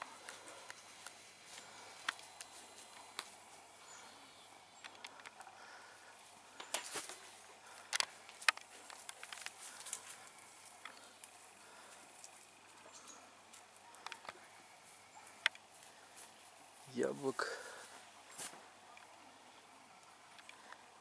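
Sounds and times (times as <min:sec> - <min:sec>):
light clicks and rustles: 0:06.4 - 0:14.5.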